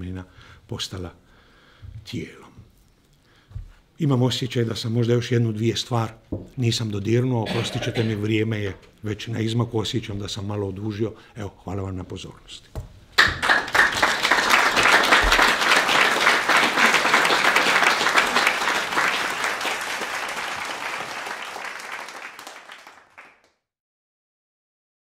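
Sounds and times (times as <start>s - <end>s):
audience applauding: 7.5s - 8.2s, 13.2s - 23.5s.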